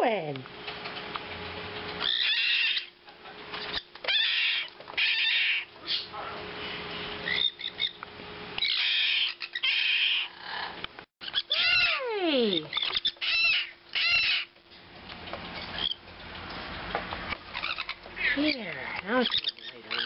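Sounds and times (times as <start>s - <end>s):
parrot chicks squawking: 2.0s - 8.0s, 8.6s - 14.6s, 15.5s - 16.4s, 17.3s - 20.0s.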